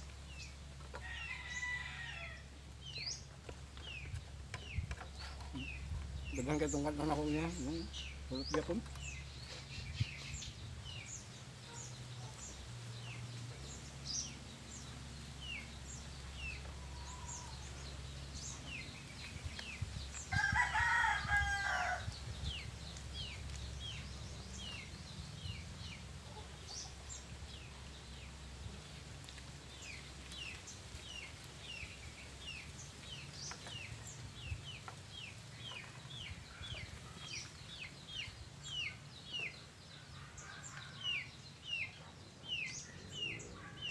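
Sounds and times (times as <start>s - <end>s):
small birds chirping: 0.0s - 43.9s
rooster crowing: 1.0s - 2.5s, 20.3s - 22.1s.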